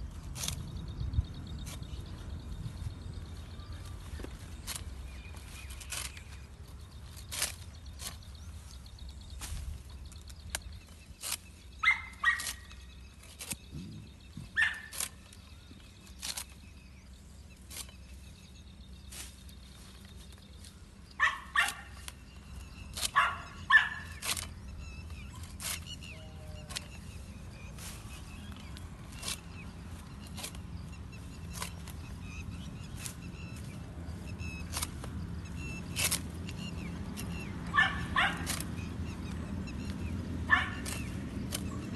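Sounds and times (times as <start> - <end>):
sickle cutting fodder stalks: 0.0 - 41.9
dog barking: 11.8 - 12.5, 21.2 - 21.9, 23.2 - 24.0, 37.7 - 38.5, 40.5 - 40.9.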